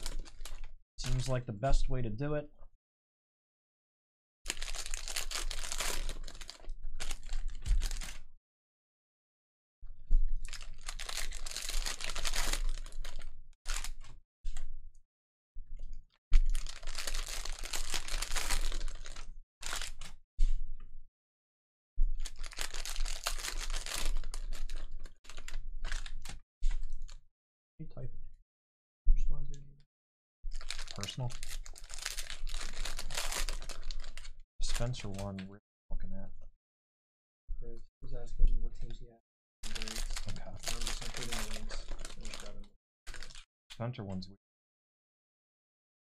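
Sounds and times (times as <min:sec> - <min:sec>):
card packs crinkling: 0:00.0 - 0:01.4, 0:04.5 - 0:08.2, 0:10.5 - 0:14.1, 0:16.4 - 0:20.1, 0:22.2 - 0:26.4, 0:30.6 - 0:35.3, 0:39.6 - 0:43.4.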